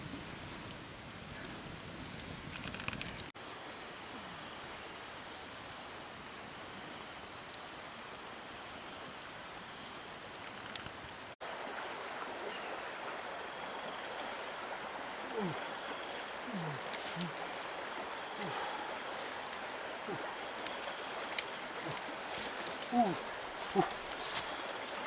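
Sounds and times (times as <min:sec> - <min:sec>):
campfire crackling: 0:00.0 - 0:25.0
stream flowing: 0:11.2 - 0:25.0.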